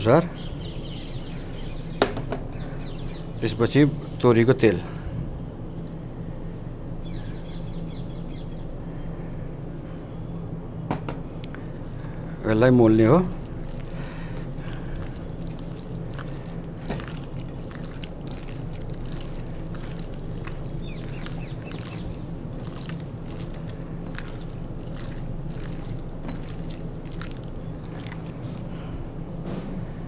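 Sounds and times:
wet squelches of kneading meat: 0:00.0 - 0:04.4, 0:11.4 - 0:29.0
steady low hum: 0:00.0 - 0:30.0.

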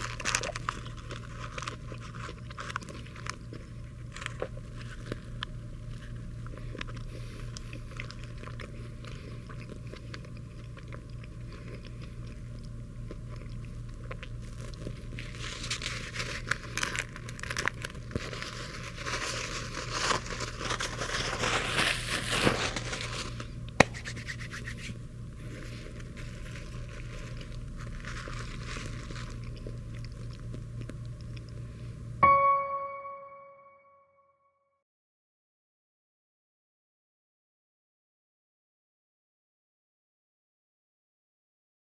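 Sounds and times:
paper wrapper crinkling: 0:00.0 - 0:06.2, 0:14.4 - 0:24.8, 0:25.4 - 0:30.6
quiet chewing: 0:00.0 - 0:21.8, 0:22.8 - 0:32.1
steady low hum: 0:00.0 - 0:33.9.

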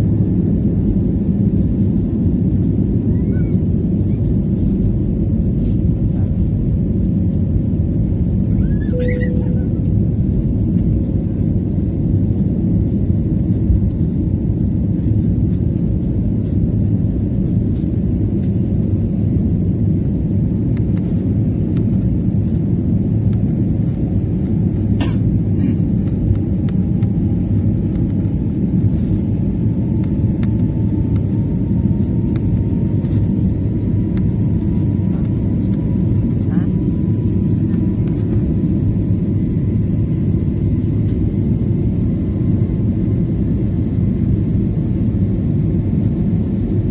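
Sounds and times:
jet engines rumbling in cabin: 0:00.0 - 0:46.9
faint rising tone: 0:08.8 - 0:09.8.

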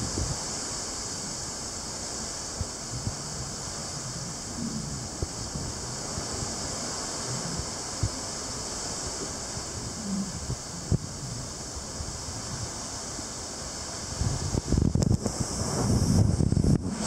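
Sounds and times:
wind gusts thumping microphone: 0:00.0 - 0:01.4, 0:02.5 - 0:17.0
wind rushing: 0:14.1 - 0:17.0.

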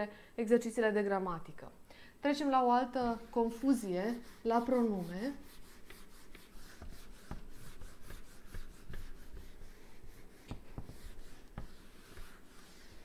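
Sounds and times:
eraser rubbing on whiteboard: 0:03.1 - 0:13.0.

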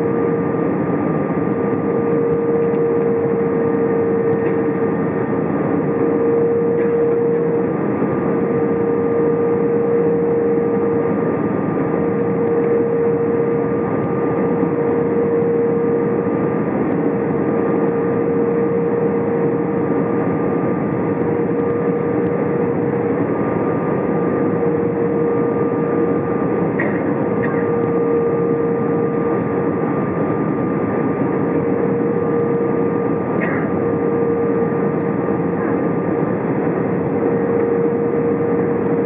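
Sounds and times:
aircraft engine and airflow noise: 0:00.0 - 0:39.0
steady cabin hum: 0:00.0 - 0:39.0.

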